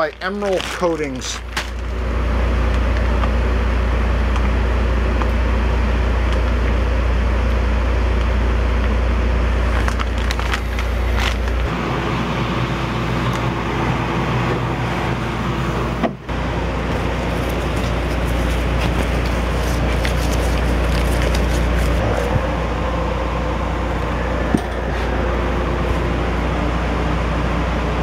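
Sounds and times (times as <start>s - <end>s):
plastic bag crackling: 0.0s - 1.9s, 9.6s - 11.7s, 16.9s - 22.3s
machine drone with rushing air: 0.0s - 28.0s.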